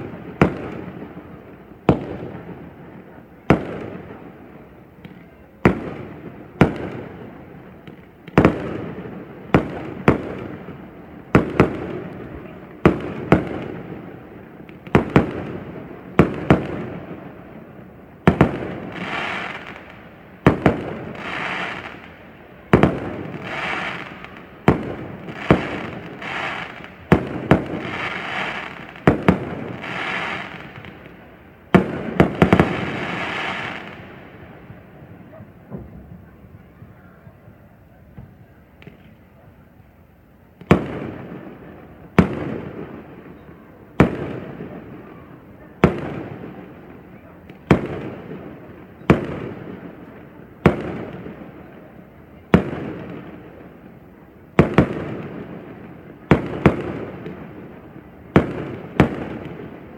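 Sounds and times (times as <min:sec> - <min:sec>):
fireworks crackling hiss: 0:00.0 - 0:34.9
fireworks bangs: 0:00.0 - 0:39.3, 0:40.6 - 0:59.9.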